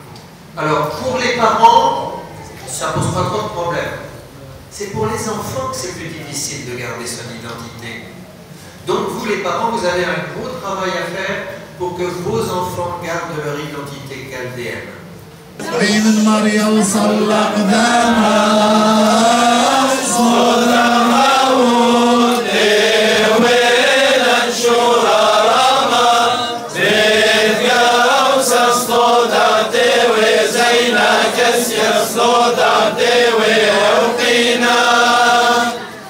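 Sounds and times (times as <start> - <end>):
men singing a chant: 15.6 - 35.8.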